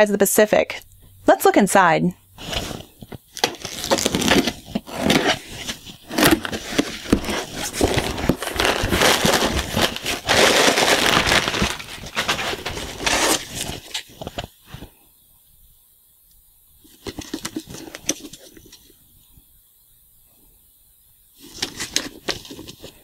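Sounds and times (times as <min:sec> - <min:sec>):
cardboard flaps pulled open: 0:02.4 - 0:14.0
plastic packing crinkling: 0:02.4 - 0:14.9.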